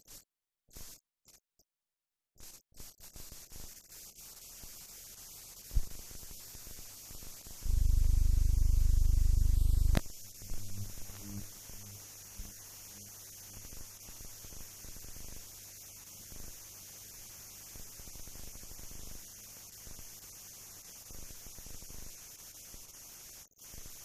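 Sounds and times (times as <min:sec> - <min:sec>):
scattered crackles: 0:02.4 - 0:14.6
faint steady hiss: 0:02.4 - 0:24.0
loud low electrical hum: 0:07.6 - 0:13.1.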